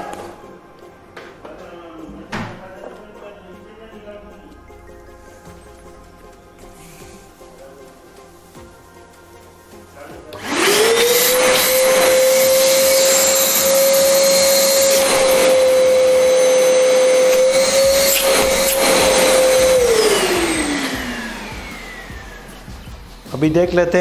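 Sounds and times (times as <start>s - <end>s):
vacuum cleaner motor whining: 10.3s - 23.0s.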